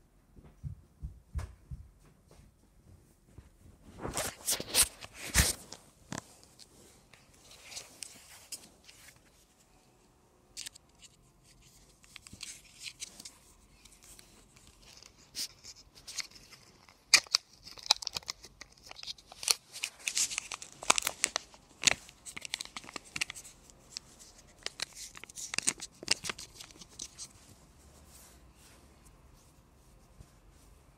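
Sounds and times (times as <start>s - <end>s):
plastic wrapper crinkling: 11.9s - 27.5s.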